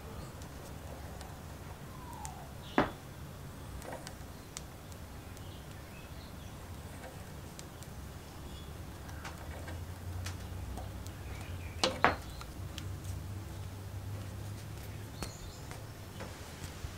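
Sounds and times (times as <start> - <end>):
steady low hum: 0.0 - 16.9.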